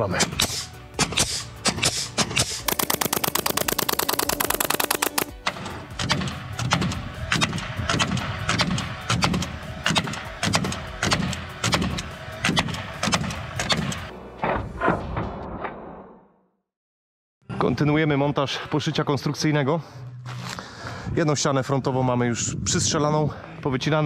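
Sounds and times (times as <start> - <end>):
nail gun firing: 0.2 - 14.1
staple gun rapid-firing: 0.4 - 14.1.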